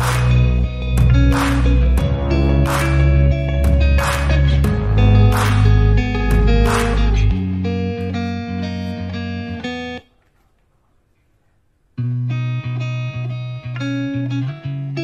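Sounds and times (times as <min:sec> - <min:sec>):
plucked string music: 0:00.0 - 0:10.0.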